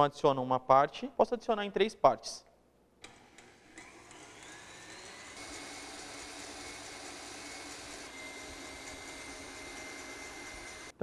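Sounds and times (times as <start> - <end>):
stand mixer whisking: 3.1 - 11.0.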